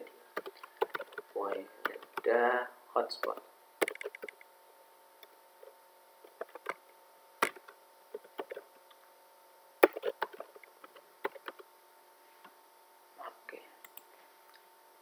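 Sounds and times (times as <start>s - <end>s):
faint steady hum: 0.0s - 15.0s
computer keyboard clicks: 0.4s - 2.2s, 3.2s - 4.4s, 9.8s - 11.6s.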